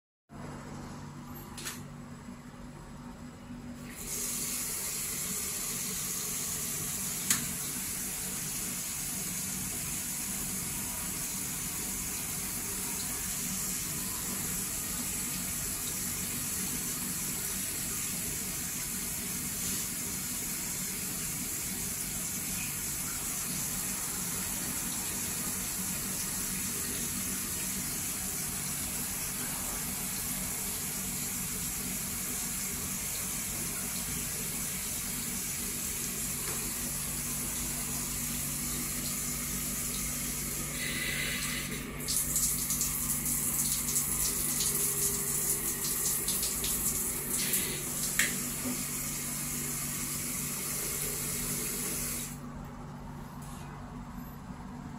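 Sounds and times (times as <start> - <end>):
water spraying into toilet bowl: 40.9 - 48.9.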